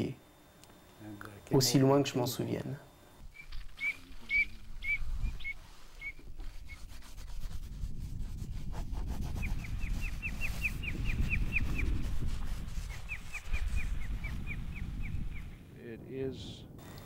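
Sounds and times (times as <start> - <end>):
bird chirping: 3.2 - 6.9, 9.4 - 12.1, 12.8 - 15.7
wind rumble on microphone: 3.2 - 17.0.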